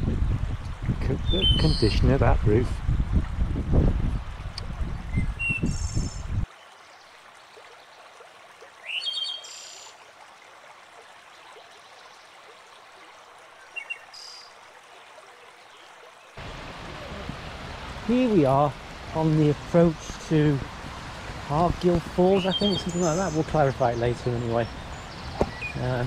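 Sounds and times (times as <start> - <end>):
stream rushing over rocks: 0.0 - 26.0
small birds chirping: 0.8 - 2.2, 5.0 - 7.1, 8.8 - 9.9, 13.6 - 14.5, 20.8 - 26.0.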